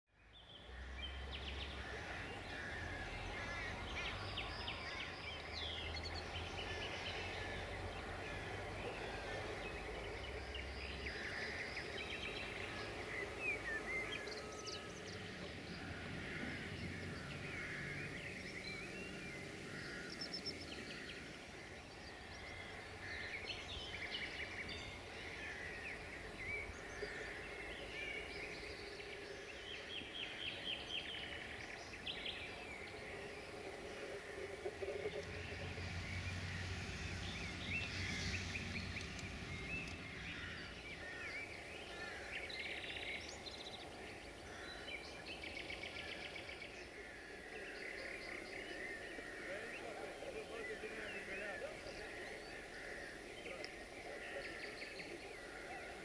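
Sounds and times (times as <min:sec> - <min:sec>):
outdoor background noise: 0:00.1 - 0:56.0
birds chirping and singing: 0:00.3 - 0:56.0.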